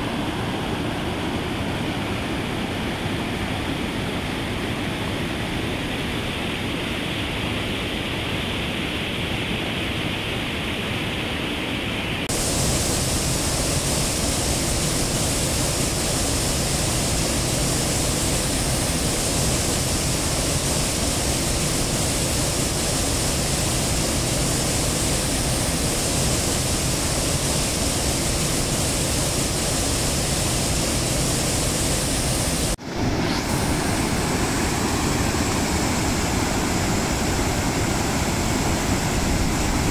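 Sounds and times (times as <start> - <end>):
fast-flowing water rushing: 12.3 - 39.9.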